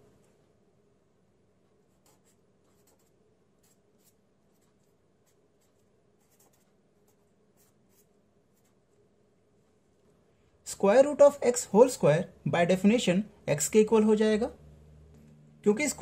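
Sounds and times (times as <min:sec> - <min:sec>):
marker scratching on paper: 0:02.0 - 0:08.8.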